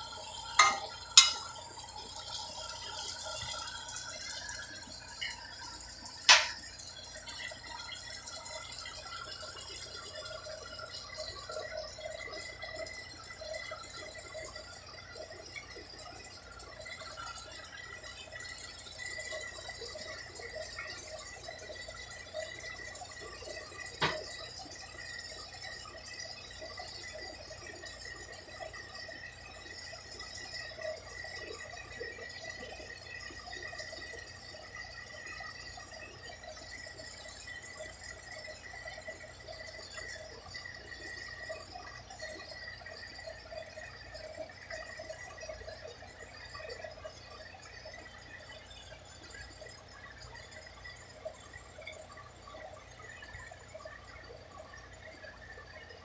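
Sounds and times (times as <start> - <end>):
vegetables sizzling in a pot: 0.0 - 36.6
metal spoon clinking on pot: 0.6 - 1.6, 6.3 - 6.6.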